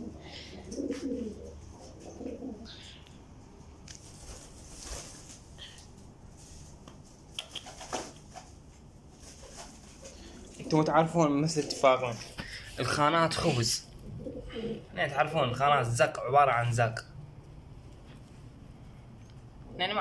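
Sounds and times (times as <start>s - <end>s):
pigeons cooing: 0.0s - 3.4s, 14.0s - 15.0s
wings flapping: 3.8s - 10.8s.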